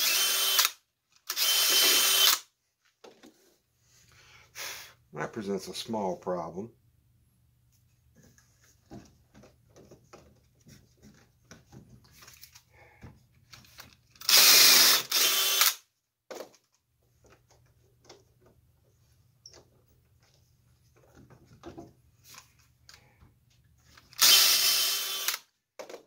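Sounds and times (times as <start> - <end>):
cordless drill boring into wood: 0.0 - 2.5, 14.2 - 15.8, 24.2 - 25.5.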